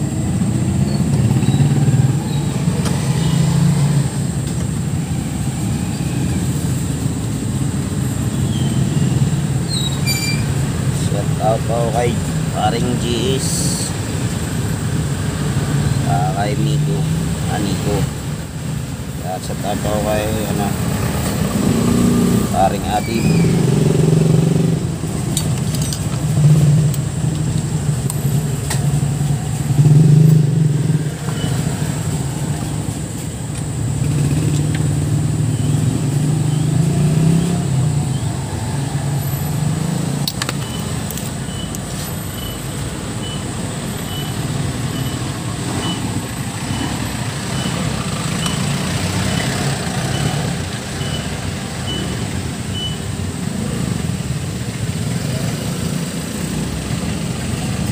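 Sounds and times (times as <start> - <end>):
vehicle engines droning: 0.0 - 57.9.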